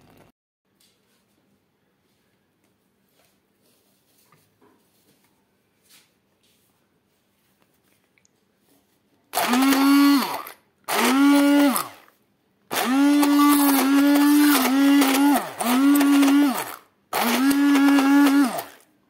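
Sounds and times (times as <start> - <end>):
immersion blender motor whine: 9.4 - 12.1, 12.7 - 18.9.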